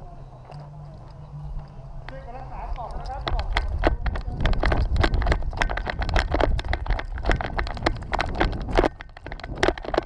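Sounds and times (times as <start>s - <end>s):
rattle of carried gear: 0.0s - 10.0s
running footsteps on dirt: 0.0s - 10.0s.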